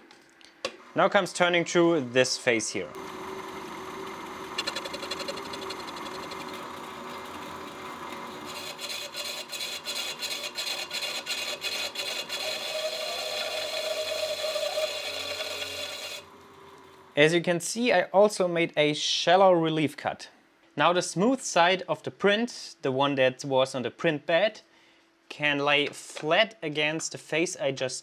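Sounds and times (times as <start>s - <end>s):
metal lathe running: 3.0s - 16.4s.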